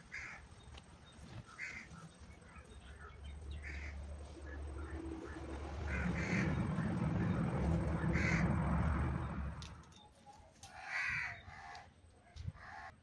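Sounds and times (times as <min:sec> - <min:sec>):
low rumbling noise: 0:02.3 - 0:10.0.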